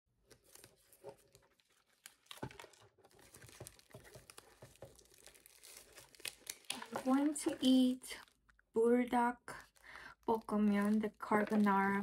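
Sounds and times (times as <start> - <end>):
plastic shrink-wrap crinkling: 0.2 - 8.7, 9.5 - 12.0.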